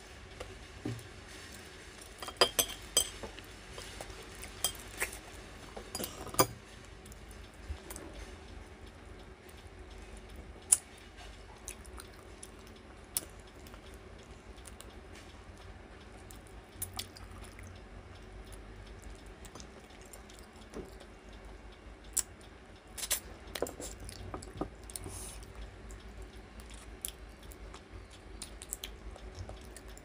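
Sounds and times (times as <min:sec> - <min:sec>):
close-up chewing: 0:10.7 - 0:15.4, 0:16.1 - 0:21.4, 0:23.0 - 0:30.0.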